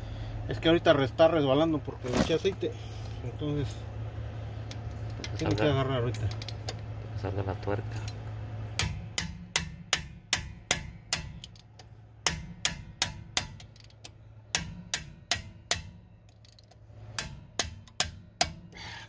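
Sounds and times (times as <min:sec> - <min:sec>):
ratchet wrench clicking: 0:04.7 - 0:06.8, 0:08.8 - 0:19.0.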